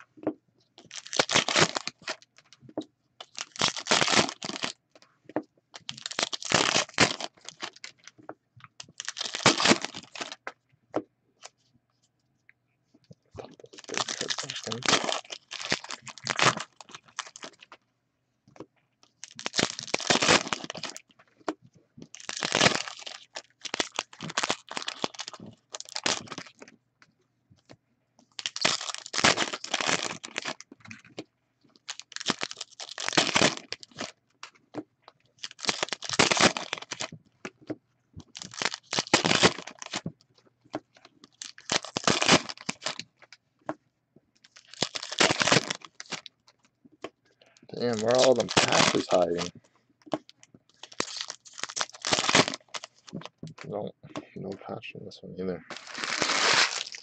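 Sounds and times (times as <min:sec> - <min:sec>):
card wrappers tearing and crinkling: 0:00.8 - 0:02.5, 0:03.2 - 0:04.8, 0:05.8 - 0:08.1, 0:08.8 - 0:10.4, 0:13.6 - 0:17.7, 0:19.2 - 0:21.0, 0:22.1 - 0:26.6, 0:28.4 - 0:30.8, 0:31.8 - 0:34.1, 0:35.4 - 0:37.2, 0:38.3 - 0:40.0, 0:41.2 - 0:43.1, 0:44.4 - 0:46.3, 0:47.8 - 0:49.5, 0:50.8 - 0:53.4, 0:55.6 - 0:57.0.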